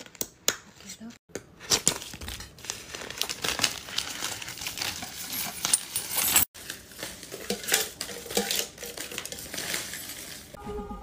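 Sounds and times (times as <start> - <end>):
banknotes rustling: 1.6 - 10.6
coins clinking in metal tin: 4.1 - 6.5, 7.4 - 10.6.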